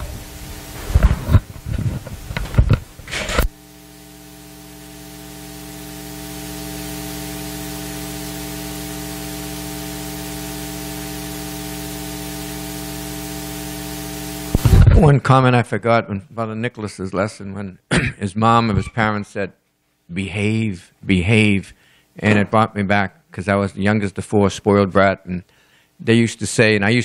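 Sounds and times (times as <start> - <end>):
static hiss: 0.0 - 15.2
electrical mains hum: 0.0 - 24.2
knocks and rustles on microphone: 0.8 - 3.5.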